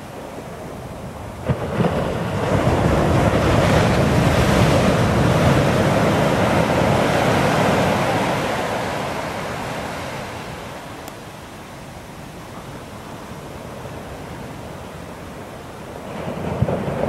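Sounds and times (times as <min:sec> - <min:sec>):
foam rushing up the beach: 0:00.0 - 0:10.8, 0:16.0 - 0:17.0
wave breaking: 0:00.2 - 0:11.0.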